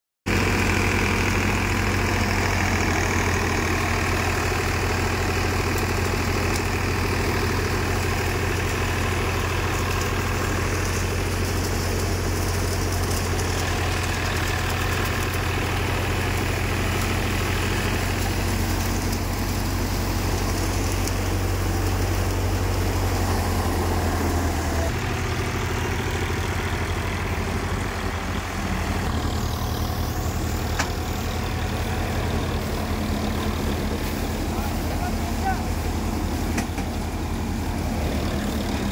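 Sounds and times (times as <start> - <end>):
tractor engine running: 0.3 - 38.9.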